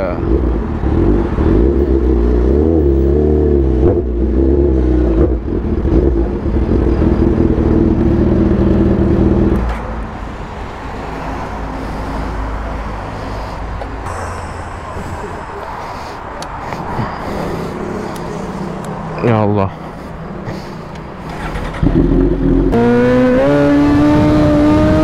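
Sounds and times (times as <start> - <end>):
street traffic hum: 0.0 - 25.0
motorcycle engine at low revs: 0.2 - 9.8, 20.9 - 25.0.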